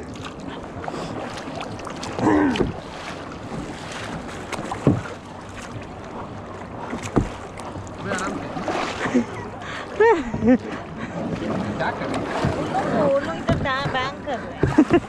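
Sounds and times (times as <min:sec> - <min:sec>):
paddle strokes in water: 0:00.0 - 0:15.0
water washing along hull: 0:00.0 - 0:15.0.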